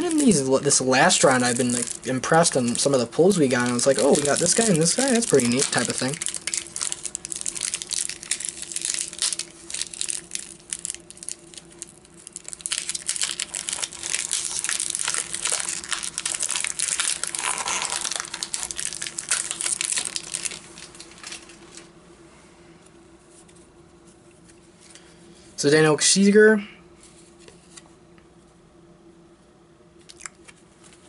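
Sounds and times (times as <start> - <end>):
wrapper crinkling and tearing: 0.0 - 21.9.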